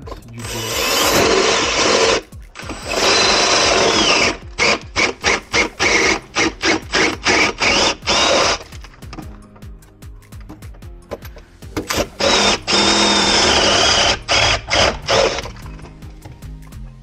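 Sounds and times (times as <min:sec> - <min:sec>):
electric drill boring through plasterboard: 0:00.4 - 0:08.7, 0:11.9 - 0:15.5.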